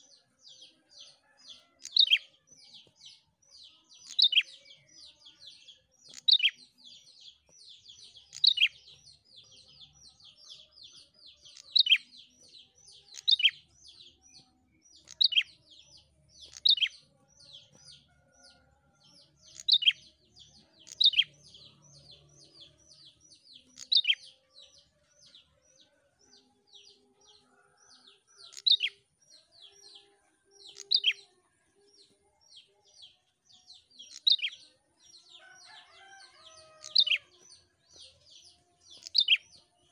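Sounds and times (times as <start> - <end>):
songbird chirping: 0.0 - 39.9.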